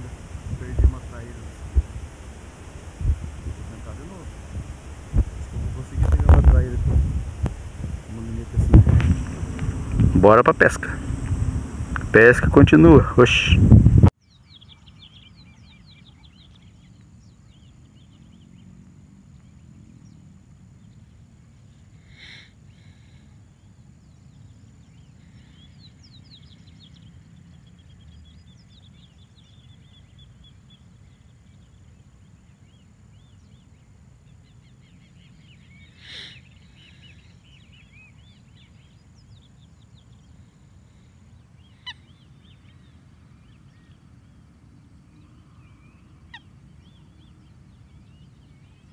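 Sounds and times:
thin steady high whine: 0.0s - 14.1s
low wind rumble: 0.0s - 14.2s
small birds chirping: 0.0s - 48.9s
honking bird calls: 41.6s - 42.5s.

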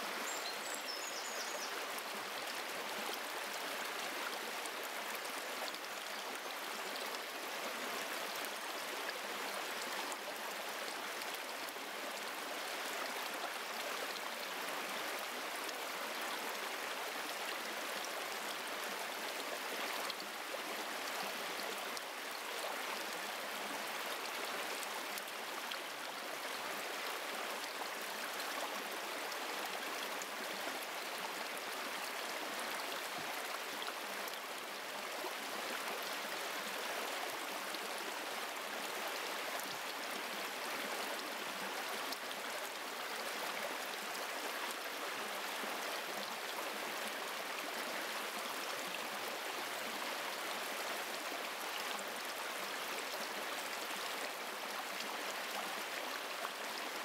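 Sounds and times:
stream running over rocks: 0.0s - 57.0s.

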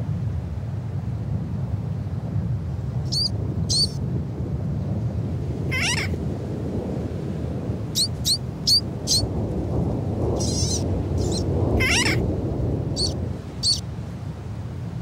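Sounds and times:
low rumble: 2.5s - 15.0s
bird chick peeping: 3.1s - 4.0s, 8.0s - 9.3s, 10.4s - 12.2s, 13.0s - 13.8s
wavering chick call: 5.7s - 6.1s, 8.0s - 9.2s, 10.4s - 12.2s, 13.0s - 13.8s.

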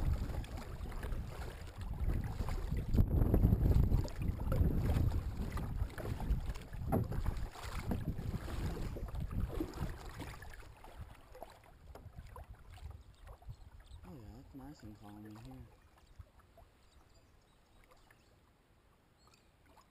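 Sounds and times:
wind rumbling on microphone: 0.0s - 11.2s, 11.8s - 14.1s
paddle splashing in water: 0.0s - 18.5s.

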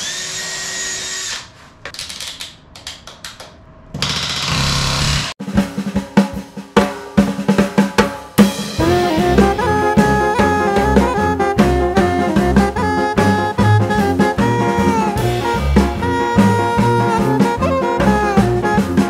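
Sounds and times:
cordless drill running: 0.0s - 1.5s
music with drum beat: 5.4s - 19.0s.

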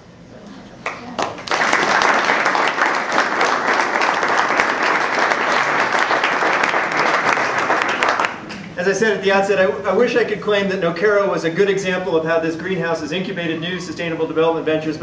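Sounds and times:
audience clapping: 0.8s - 8.8s.

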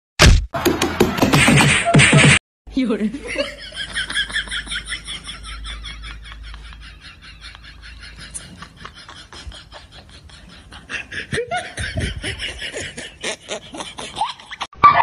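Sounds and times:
person laughing: 3.2s - 14.7s.

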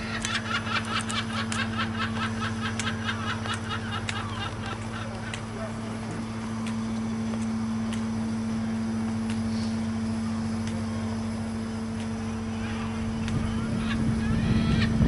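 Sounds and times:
boat engine humming: 0.0s - 15.0s
faint ticks: 0.2s - 5.5s.

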